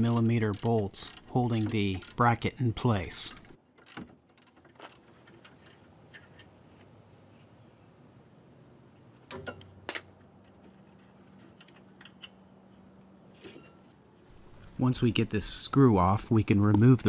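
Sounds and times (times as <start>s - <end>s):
ratchet wrench clicking: 0.1s - 2.2s.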